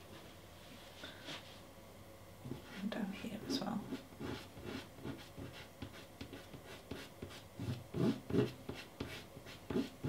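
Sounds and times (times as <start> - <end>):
pastel stick scratching on mat: 2.5 - 10.0.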